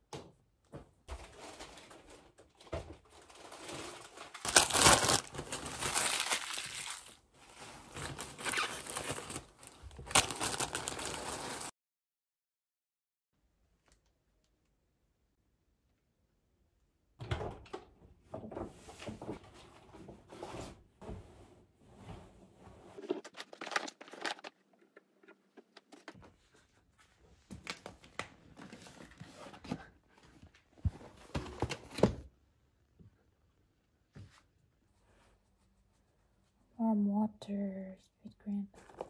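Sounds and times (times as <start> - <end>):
rustling and crinkling: 0.7 - 11.7, 18.6 - 32.3.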